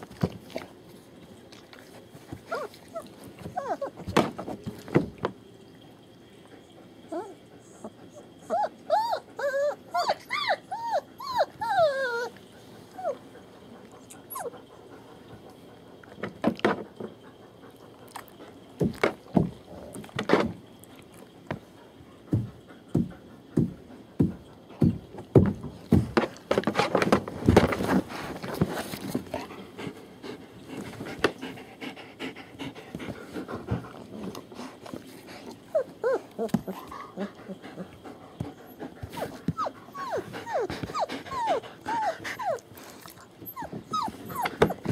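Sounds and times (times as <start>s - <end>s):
puppies whimpering: 2.4s - 4.1s, 7.1s - 14.9s, 35.4s - 44.9s
knocks and scuffling: 22.3s - 29.5s.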